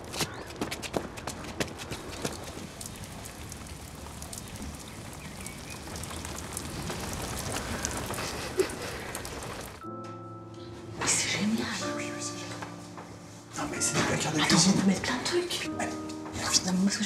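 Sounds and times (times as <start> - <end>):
rain falling on umbrellas: 0.0 - 9.8.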